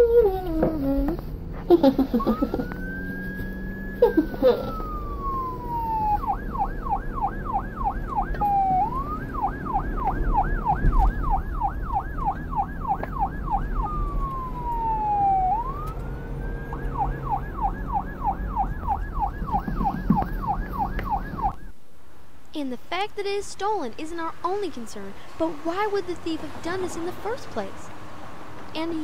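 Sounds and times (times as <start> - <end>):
police siren wailing and yelping: 0.0 - 21.8.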